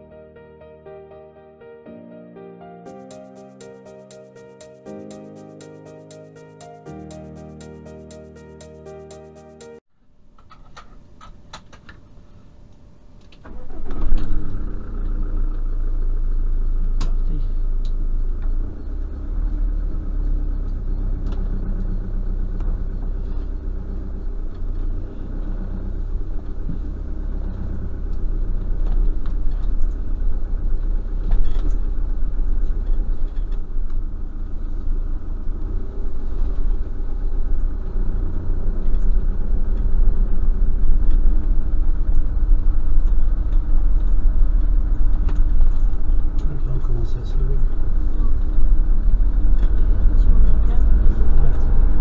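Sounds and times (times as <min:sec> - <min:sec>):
road noise inside cab: 0:13.3 - 0:52.0
van engine running: 0:13.5 - 0:52.0.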